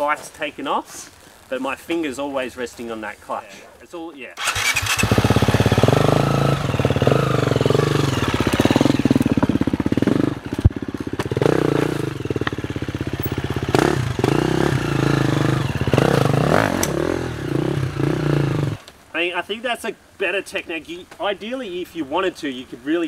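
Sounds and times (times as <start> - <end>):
dirt bike engine revving: 4.4 - 18.8.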